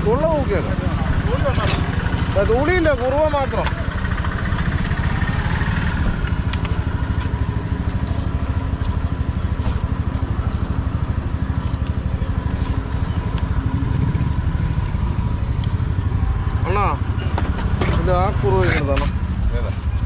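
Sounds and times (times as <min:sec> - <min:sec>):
small engine idling: 0:00.0 - 0:20.0.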